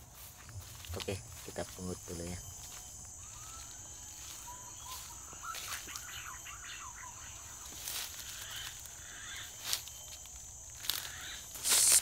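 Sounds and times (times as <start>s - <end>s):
steady high hiss: 0.0s - 12.0s
rustles and knocks in foliage: 2.6s - 6.2s, 7.5s - 12.0s.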